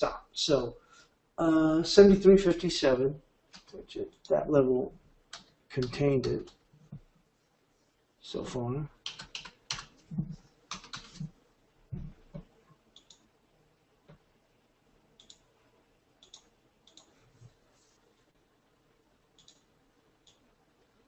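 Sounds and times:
computer mouse clicking: 5.3 - 6.6, 9.0 - 11.3, 12.3 - 13.3, 15.2 - 15.5, 16.2 - 17.2, 19.4 - 20.5.

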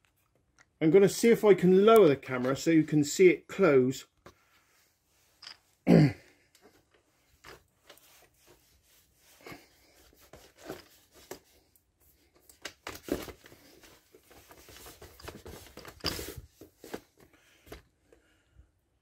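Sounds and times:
phone handling rustling and scraping: 12.4 - 17.9.

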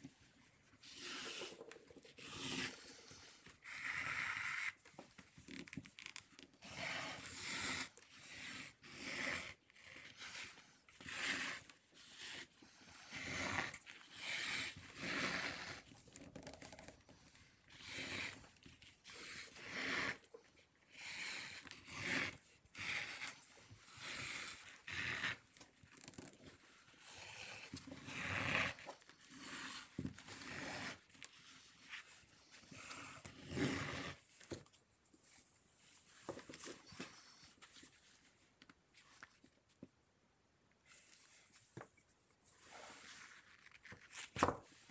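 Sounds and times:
lace rasping on leather: 3.6 - 17.0, 21.0 - 32.1.

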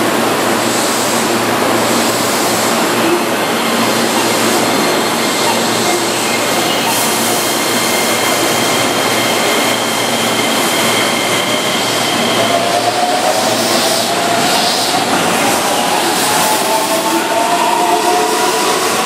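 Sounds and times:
electric train running noise: 0.0 - 19.0.

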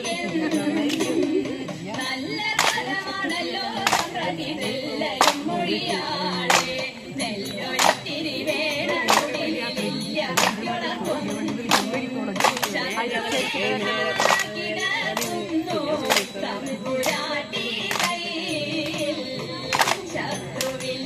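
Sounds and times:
women singing: 0.0 - 21.0
hands clapping in unison: 0.5 - 1.6, 2.4 - 21.0.

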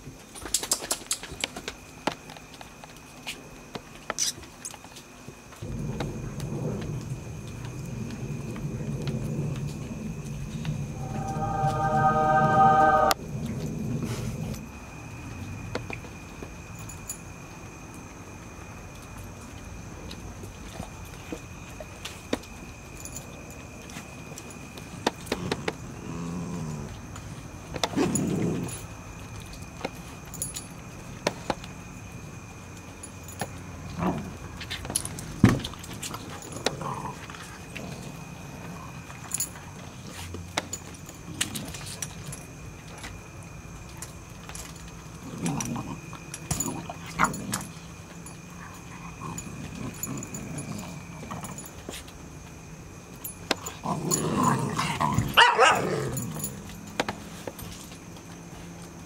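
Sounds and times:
puppies growling: 48.6 - 51.5.

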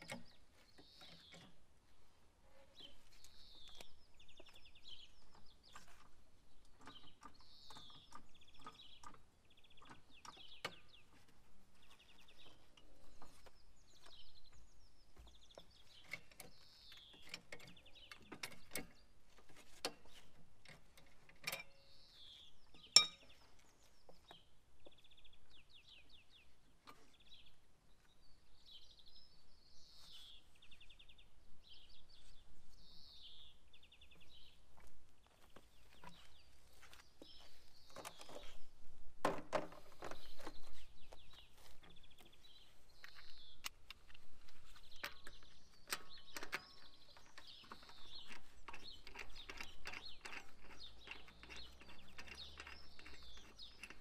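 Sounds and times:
small birds trilling and chirping: 0.0 - 54.0
sharp clicks and knocks: 15.2 - 21.8, 43.0 - 54.0.

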